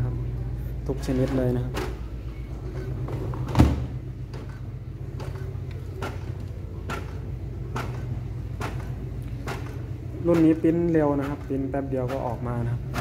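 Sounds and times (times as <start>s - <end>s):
printer humming: 0.0s - 13.0s
printer clicking: 1.0s - 13.0s
printer thump: 3.1s - 4.5s.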